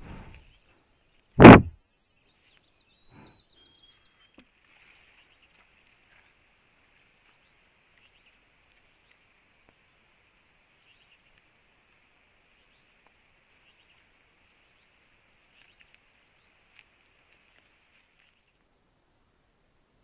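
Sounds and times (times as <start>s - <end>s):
soft thud: 1.4s - 1.7s.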